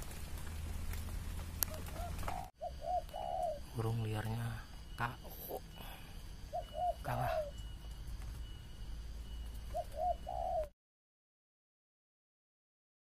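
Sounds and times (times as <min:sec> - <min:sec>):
dove cooing: 0:01.6 - 0:10.8.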